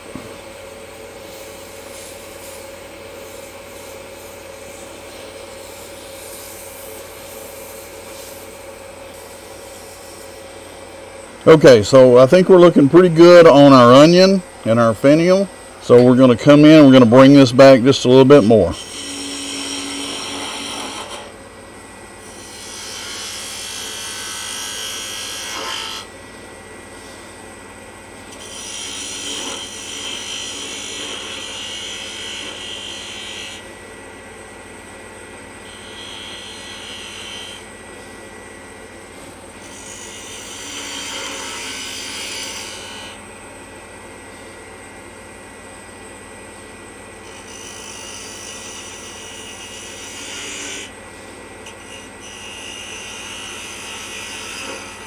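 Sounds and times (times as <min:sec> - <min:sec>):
wood lathe humming: 0:00.0 - 0:55.0
turning tool scraping wood: 0:15.3 - 0:21.4, 0:22.2 - 0:26.1, 0:28.2 - 0:33.7, 0:35.6 - 0:38.2, 0:39.1 - 0:43.2, 0:47.2 - 0:55.0.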